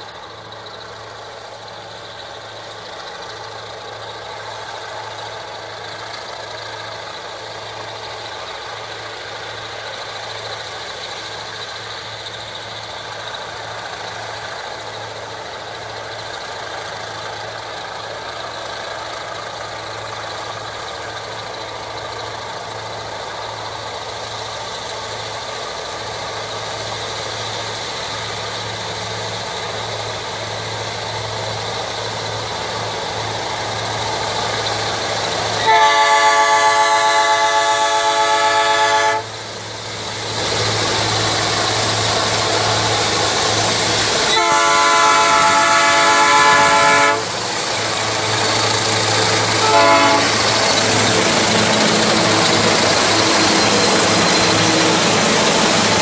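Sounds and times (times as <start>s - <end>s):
diesel locomotive engine under load: 0.0s - 56.0s
locomotive air horn chord: 35.6s - 39.4s, 44.3s - 47.4s, 49.5s - 53.4s.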